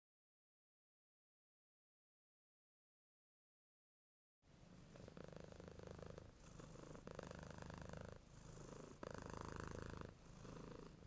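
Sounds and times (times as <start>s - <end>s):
cat purring: 4.7s - 11.0s.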